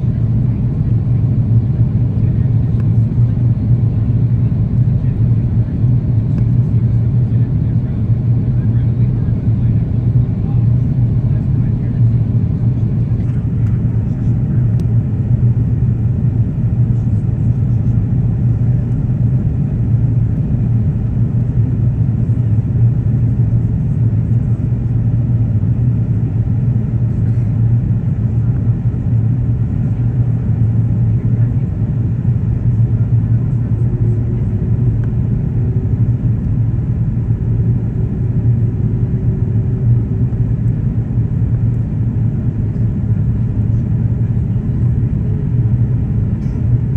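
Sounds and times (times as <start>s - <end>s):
airliner cabin rumble: 0.0s - 46.9s.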